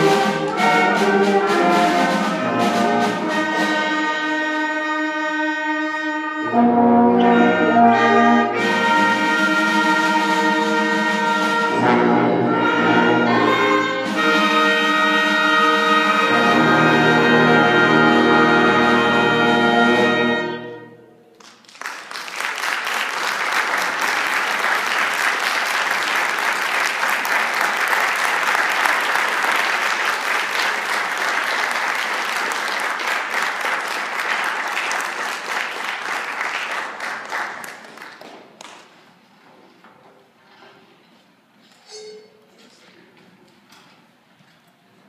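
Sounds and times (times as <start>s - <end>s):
concert band brass chord: 0.0s - 21.3s
audience applause: 21.3s - 38.8s.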